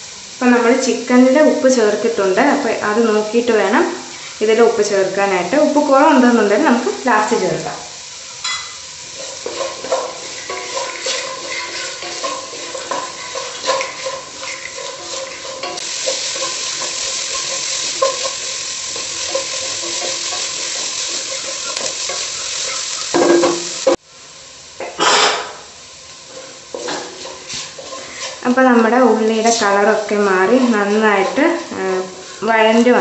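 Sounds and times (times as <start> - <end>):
shallots sizzling in oil: 0.0 - 33.0
wooden spatula scraping pan: 9.1 - 24.0, 26.3 - 33.0.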